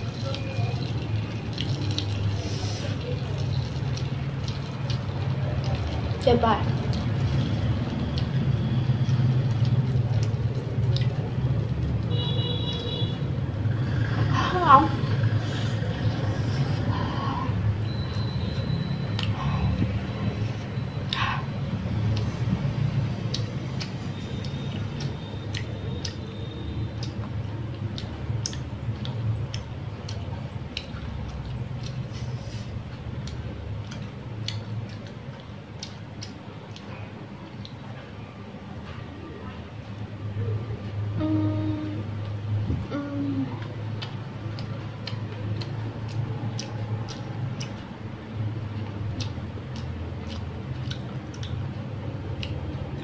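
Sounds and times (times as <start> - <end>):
street traffic rumble: 0.0 - 53.0
car horn beep: 12.1 - 13.2.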